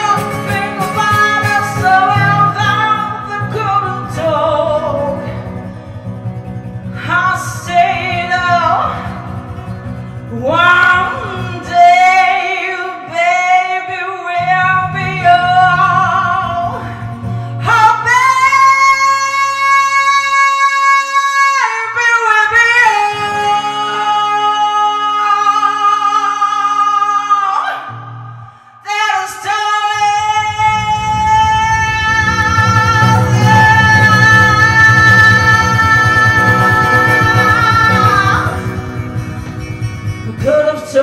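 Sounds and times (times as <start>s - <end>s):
woman singing with vibrato: 0.0s - 5.7s, 6.8s - 9.5s, 10.2s - 41.0s
strummed acoustic guitar: 0.0s - 19.7s, 32.2s - 41.0s.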